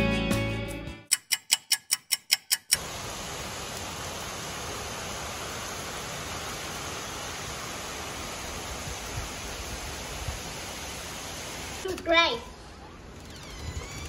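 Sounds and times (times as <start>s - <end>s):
sharp regular ticks: 1.1s - 2.8s
heavy rain pouring: 2.8s - 11.9s.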